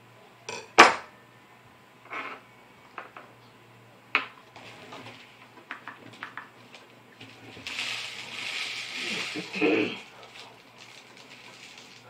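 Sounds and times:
steady rustling hiss: 3.6s - 12.0s.

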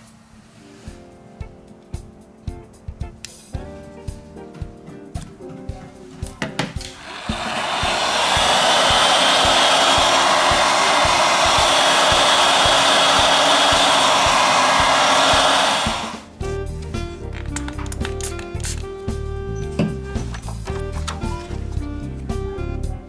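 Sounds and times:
background music: 0.6s - 23.0s
heat gun blowing air: 6.9s - 16.3s.

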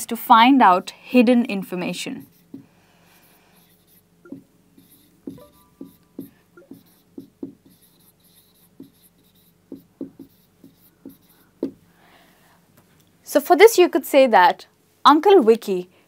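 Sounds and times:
marker pen on whiteboard: 1.6s - 11.9s.

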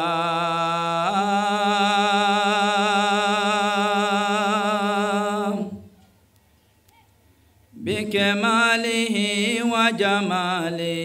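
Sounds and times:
man chanting: 7.8s - 11.0s.

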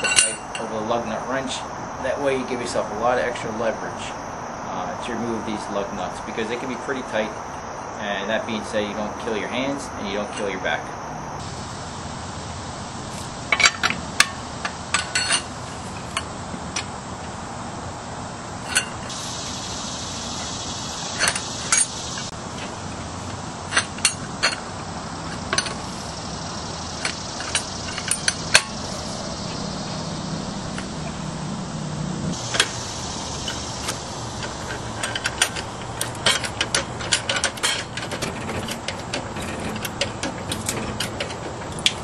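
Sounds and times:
metal wrench clinking on lug nuts: 0.0s - 0.8s, 10.2s - 10.6s, 13.5s - 16.9s, 18.6s - 19.2s, 21.1s - 26.0s, 27.0s - 29.0s, 32.4s - 42.0s.

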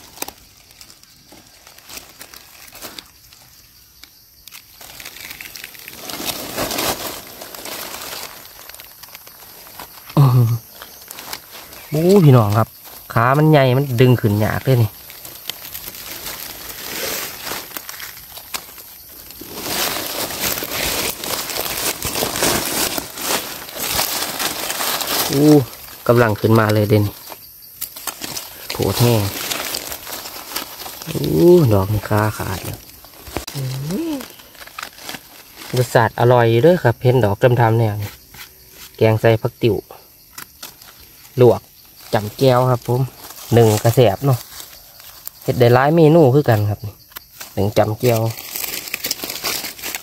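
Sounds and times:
dry leaves crackling and rustling: 0.0s - 36.6s, 39.7s - 50.0s.

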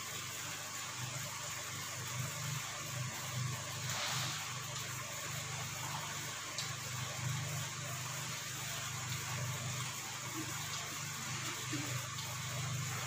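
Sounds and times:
even hiss: 3.7s - 6.1s.

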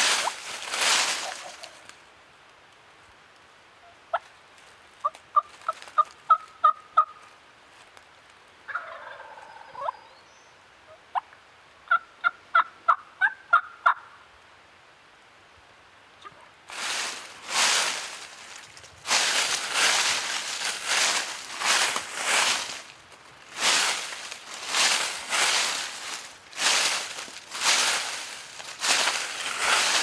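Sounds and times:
loud rustle: 0.0s - 1.9s, 16.7s - 30.0s
turkey rattling gobble: 1.2s - 1.8s, 5.3s - 7.2s, 8.7s - 10.0s, 11.9s - 14.1s
turkey yelps: 8.7s - 10.2s, 11.9s - 14.1s.

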